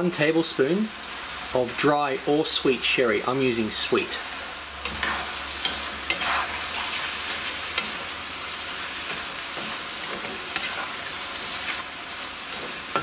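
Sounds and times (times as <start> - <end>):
food sizzling in a frying pan: 0.0 - 13.0
spatula scraping and knocking pan: 4.8 - 8.2, 8.9 - 11.9, 12.5 - 13.0.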